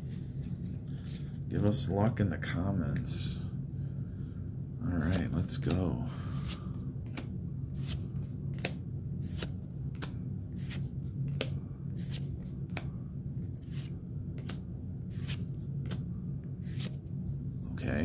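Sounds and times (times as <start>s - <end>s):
trading cards snapping: 6.4s - 12.9s, 13.5s - 16.0s.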